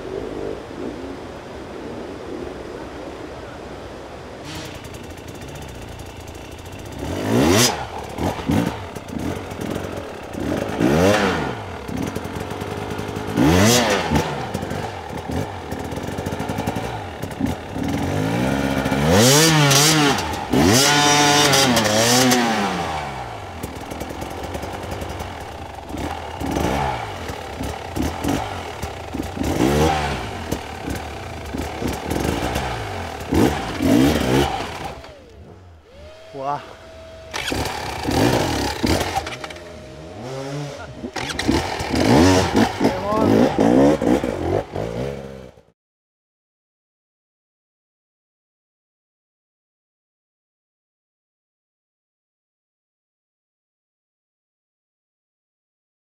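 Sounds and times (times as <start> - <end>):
bike scraping on rock: 4.4 - 12.8, 37.3 - 39.6
dirt bike engine revving: 4.4 - 45.7.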